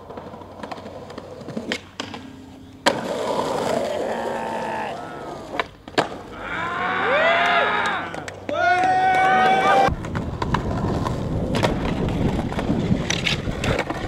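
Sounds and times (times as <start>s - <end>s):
skateboard clacks: 0.0s - 4.4s, 7.4s - 14.0s
skateboard wheels rolling on asphalt: 0.0s - 14.0s
voices: 3.3s - 5.7s.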